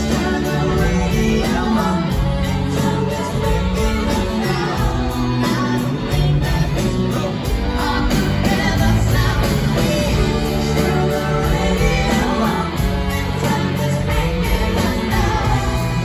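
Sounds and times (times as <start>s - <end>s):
live rock band: 0.0s - 16.0s
person singing: 0.0s - 16.0s.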